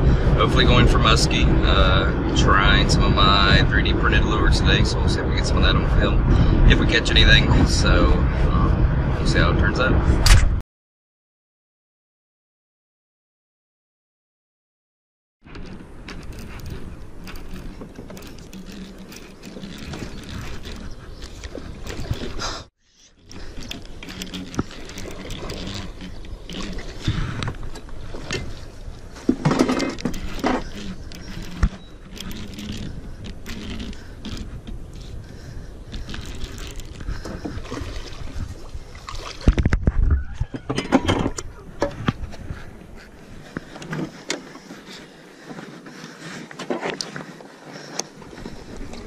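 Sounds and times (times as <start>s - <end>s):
fishing rod handling noise: 15.5s - 39.9s.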